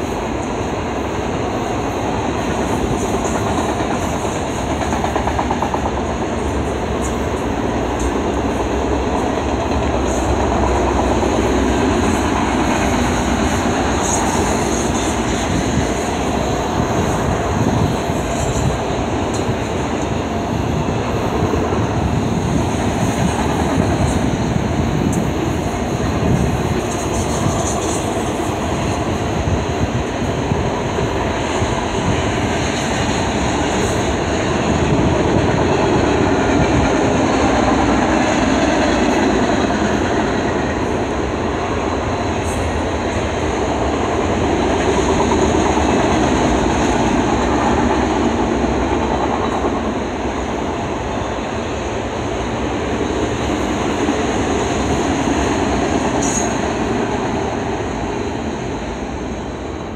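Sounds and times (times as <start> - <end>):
train wheels rumbling and rattling: 0.0 - 59.9.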